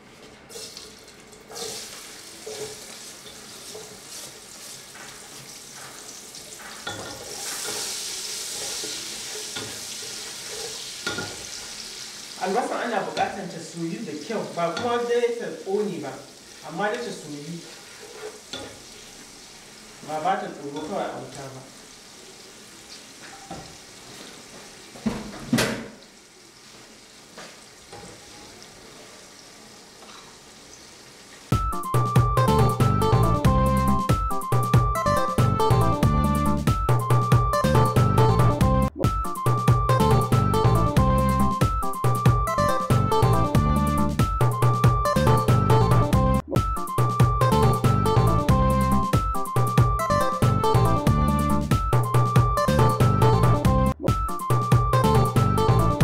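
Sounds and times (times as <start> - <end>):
onions sizzling in a pot: 0.0 - 31.7
spatula knocking pan: 8.5 - 11.5.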